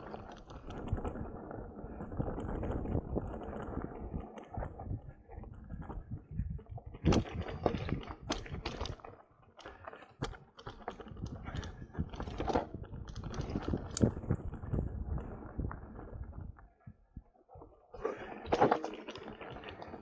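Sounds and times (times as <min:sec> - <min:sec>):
mountain bike rattling on dirt trail: 0:00.0 - 0:16.5, 0:18.0 - 0:20.0.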